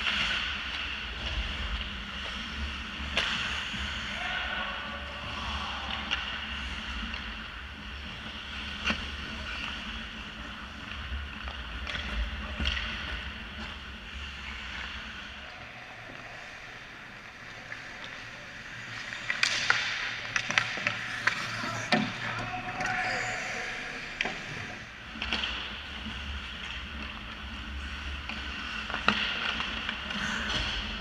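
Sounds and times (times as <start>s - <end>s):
hockey sticks and puck clacking: 0.0s - 4.0s, 5.7s - 15.2s, 16.1s - 31.0s
skate blades scraping ice: 16.3s - 31.0s.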